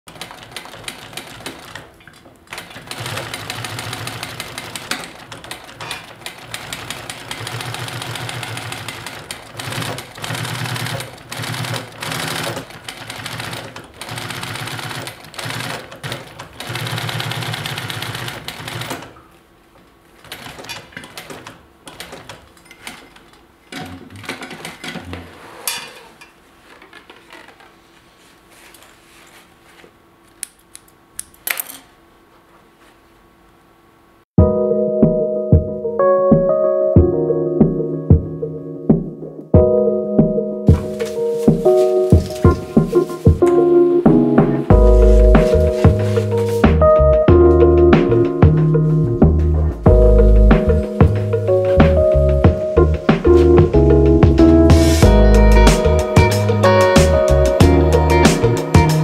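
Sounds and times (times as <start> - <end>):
sewing machine stitching: 0.1 - 19.2, 20.2 - 25.7.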